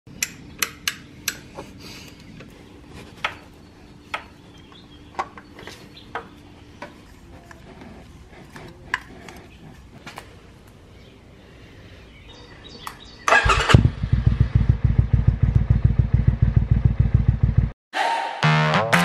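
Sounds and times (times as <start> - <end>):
sharp clicks and knocks: 0.1 - 1.6.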